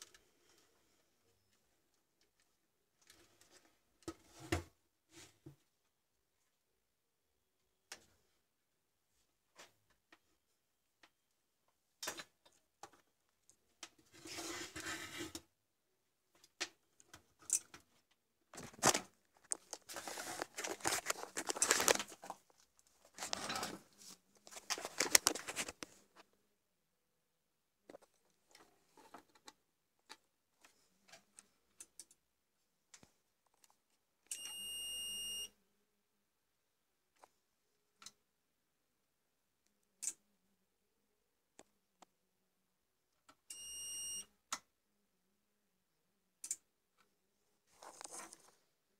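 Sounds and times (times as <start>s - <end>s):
rustling and clicking handling noise: 16.3s - 26.4s, 27.9s - 32.2s, 47.7s - 48.7s.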